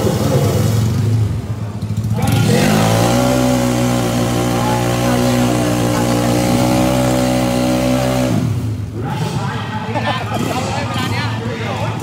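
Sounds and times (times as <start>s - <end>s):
scooter engine at high revs: 0.0s - 9.4s.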